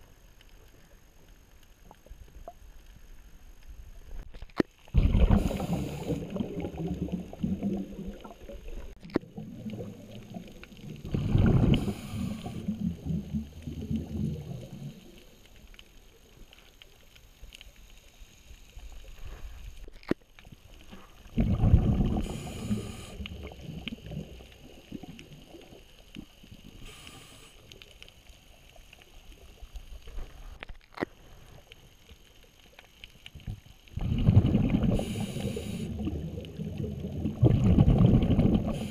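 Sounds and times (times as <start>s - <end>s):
underwater bubbles gurgling: 0.0s - 38.9s
faint clicks: 11.7s - 21.3s, 22.3s - 33.9s.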